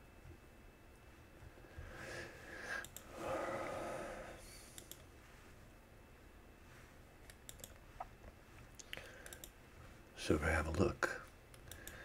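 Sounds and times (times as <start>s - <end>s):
soft noise: 0.0s - 10.5s
computer mouse clicks: 2.8s - 3.1s, 4.7s - 5.1s, 7.2s - 8.1s, 8.8s - 9.6s, 11.5s - 12.0s.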